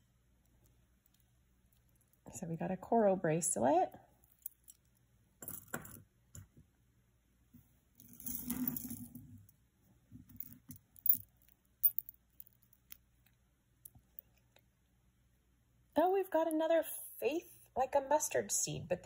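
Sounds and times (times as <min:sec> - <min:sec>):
jewelry clicking and clinking: 0:04.2 - 0:06.1, 0:08.0 - 0:09.2, 0:10.2 - 0:14.7.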